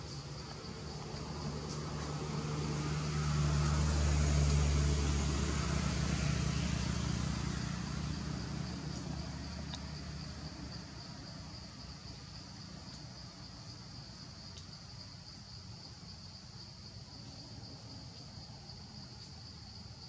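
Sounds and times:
motor vehicle passing: 0.0 - 12.7
high insect drone: 0.0 - 20.0.

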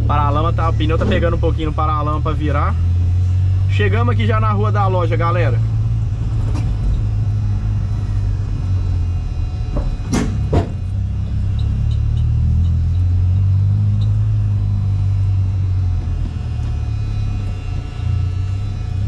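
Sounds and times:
engine and road rumble: 0.0 - 19.0
sharp knocks: 9.7 - 10.9.

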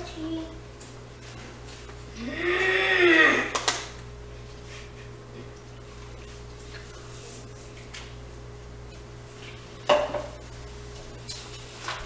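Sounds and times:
tableware knocking on table: 9.9 - 10.4.

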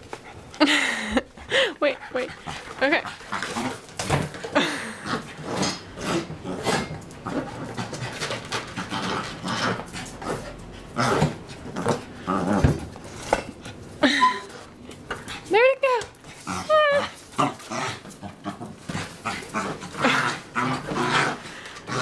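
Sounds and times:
puppy panting: 0.0 - 3.5
puppy growling: 2.2 - 13.3, 16.3 - 22.0.

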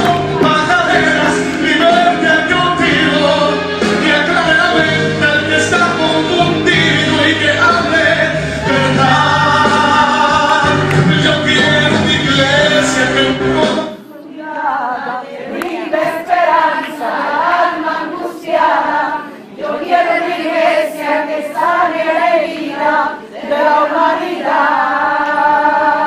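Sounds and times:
worship song with band: 0.0 - 14.9
choir singing unaccompanied: 0.0 - 26.0.

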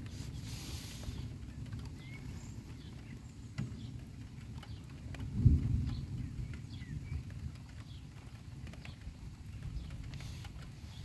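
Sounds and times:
faint bird chirps: 1.1 - 4.0
thunder rumbling: 2.6 - 7.7.

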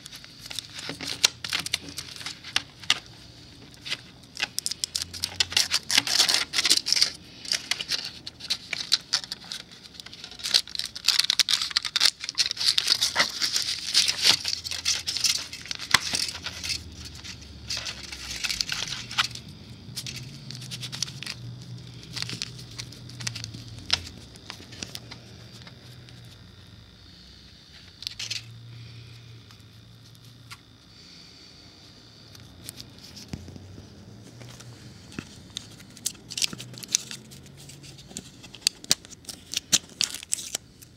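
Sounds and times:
foil wrapper crinkling: 0.0 - 26.4, 35.2 - 40.9.

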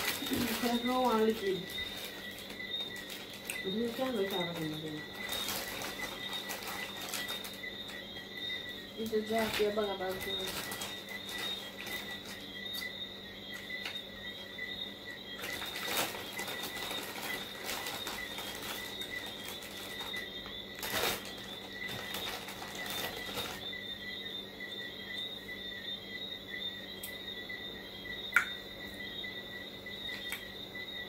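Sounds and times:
crackers crunching: 0.0 - 8.3, 15.4 - 23.6.

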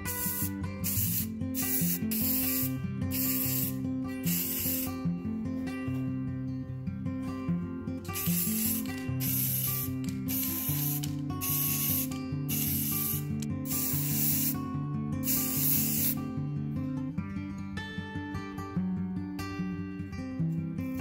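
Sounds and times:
spray paint can hissing: 0.0 - 5.0, 8.1 - 14.6, 15.2 - 16.2.

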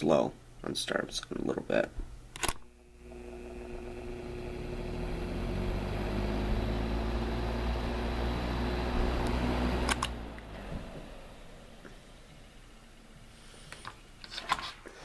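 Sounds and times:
box fan running: 2.4 - 13.3
fan switch click: 9.2 - 10.5.

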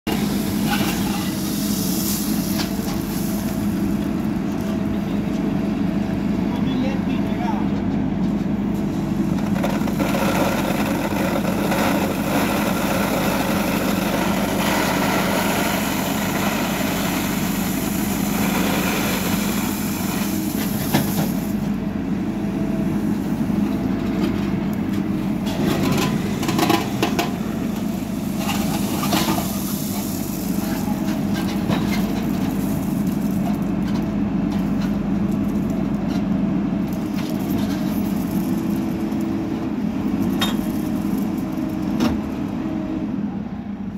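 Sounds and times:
diesel engine running: 0.0 - 43.9
steel bucket scraping gravel: 0.1 - 4.1, 9.4 - 21.6, 25.5 - 35.7, 37.2 - 39.2.

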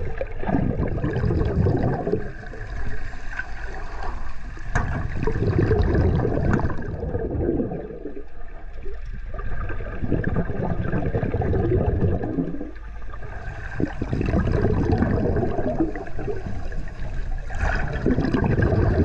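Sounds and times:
water sloshing and gurgling: 0.0 - 19.0.

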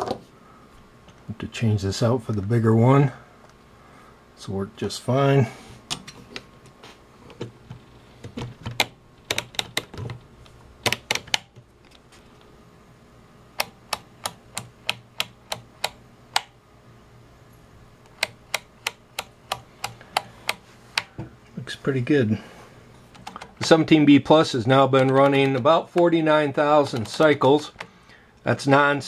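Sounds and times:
irregular clicks and knocks: 5.8 - 10.2, 10.8 - 12.0, 13.6 - 16.6, 18.1 - 21.4
rotary switch clicking: 8.7 - 10.0, 10.8 - 11.6, 13.6 - 16.6, 18.0 - 21.1.

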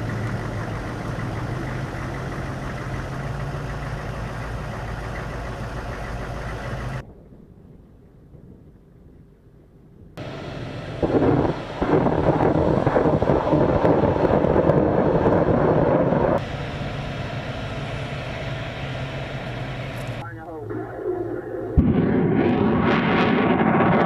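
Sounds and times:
helicopter rotor and turbine rumble: 0.0 - 7.0, 10.2 - 24.0.

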